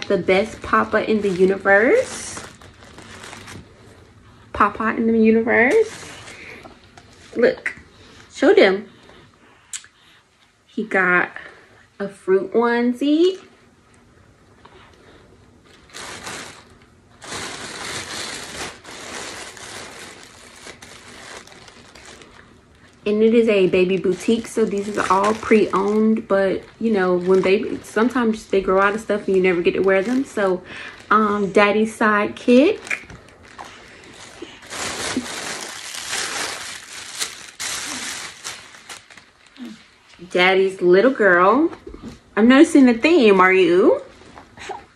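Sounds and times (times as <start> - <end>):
plastic bag crinkling and rustling: 0.0 - 8.4, 14.8 - 42.2.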